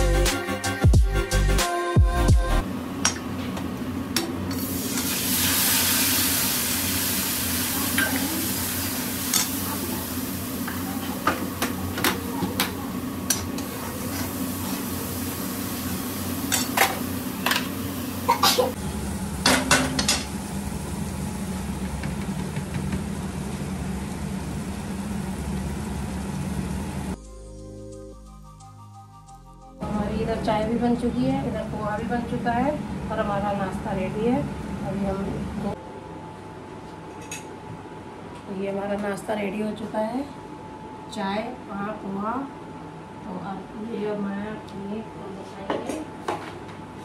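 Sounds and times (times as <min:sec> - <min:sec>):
onions sizzling in a pan: 0:04.5 - 0:12.4, 0:13.2 - 0:27.2
spatula knocking on pan: 0:21.8 - 0:23.1.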